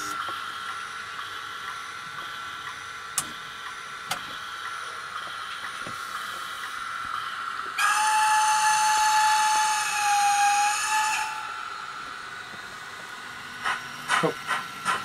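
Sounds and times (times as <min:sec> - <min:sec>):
hiss of steam: 0:00.0 - 0:15.0
steam whistle blast: 0:07.8 - 0:11.9.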